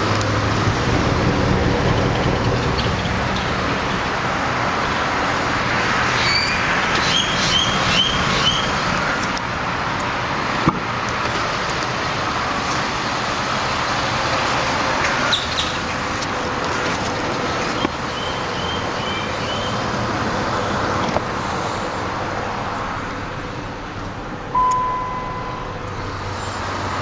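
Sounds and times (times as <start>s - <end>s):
pickup engine idling: 0.0s - 27.0s
short high chirps: 24.6s - 25.9s.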